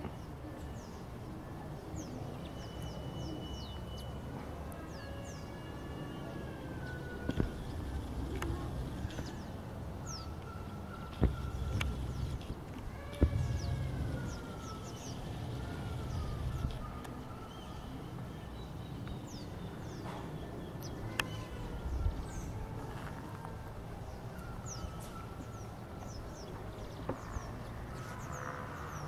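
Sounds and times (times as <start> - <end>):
birds chirping: 1.7 - 29.0
low rumble: 13.2 - 16.9.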